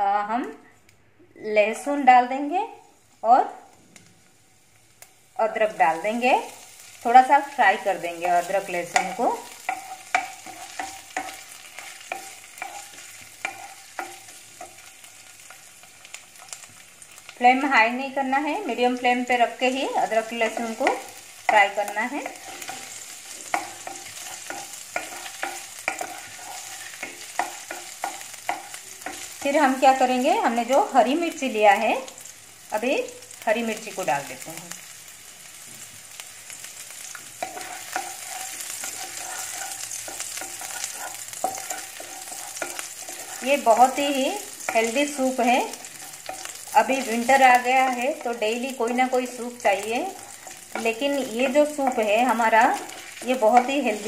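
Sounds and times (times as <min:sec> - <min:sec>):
oil sizzling: 0:01.6 - 0:54.0
spatula scraping pot: 0:08.3 - 0:14.9, 0:20.4 - 0:30.1, 0:37.4 - 0:49.4.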